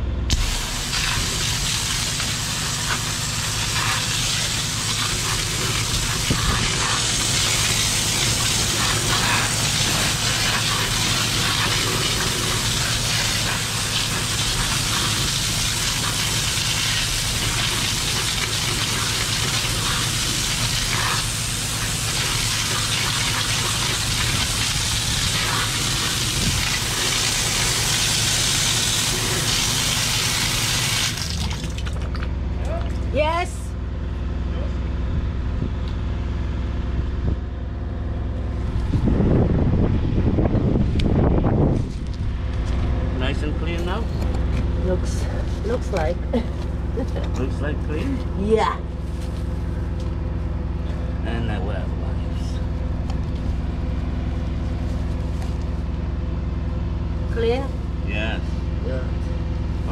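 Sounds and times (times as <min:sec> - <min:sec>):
engine humming: 0:00.0 - 0:59.9
water jetting through drain: 0:00.3 - 0:32.3.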